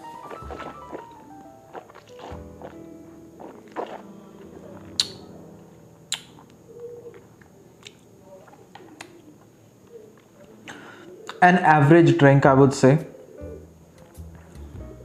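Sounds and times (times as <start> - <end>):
soft closed-mouth hums: 0.0 - 11.4, 13.0 - 15.0
tongue clicks: 4.9 - 5.3, 6.1 - 7.2
wet lip smacks: 5.0 - 5.2, 6.1 - 6.5.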